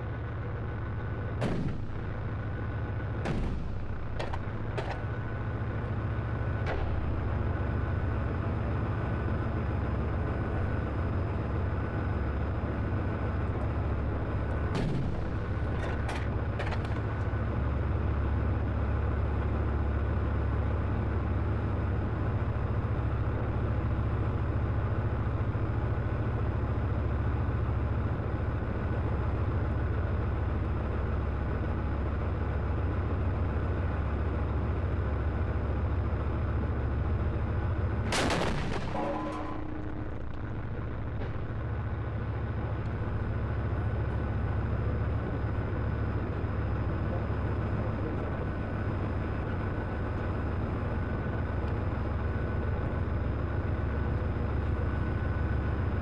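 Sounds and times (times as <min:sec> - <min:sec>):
tank diesel engine running: 0:00.0 - 0:56.0
tank gun firing blast: 0:01.3 - 0:05.6, 0:14.6 - 0:17.0, 0:38.0 - 0:41.7.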